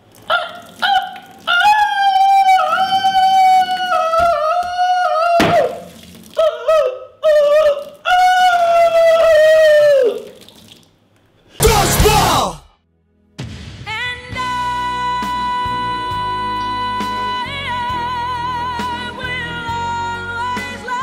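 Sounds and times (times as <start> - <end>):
high voice holding long notes: 11.6 - 12.7.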